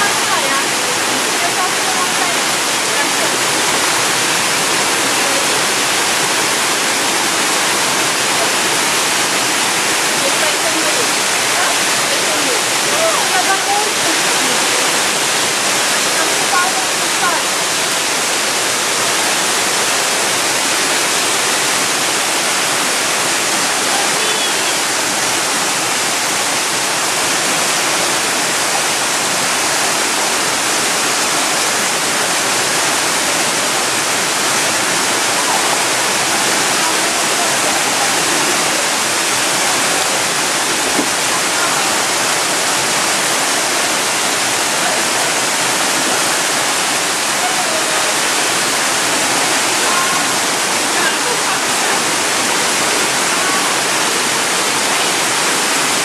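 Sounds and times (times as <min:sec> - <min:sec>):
water rushing over rocks: 0:00.0 - 0:56.0.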